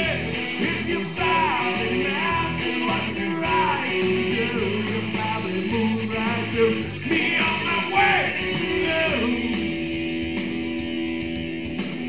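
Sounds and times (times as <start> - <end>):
man singing: 0.0 - 9.8
live rock band playing: 0.0 - 12.0.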